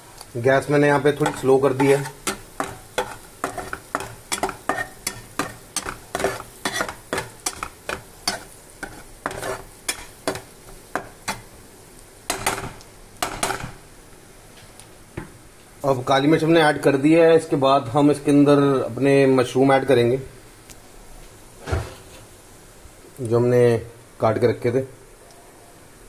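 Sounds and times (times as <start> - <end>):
faint sizzle: 0.0 - 26.0
metal spatula scraping a pan: 0.9 - 11.5, 12.3 - 13.8.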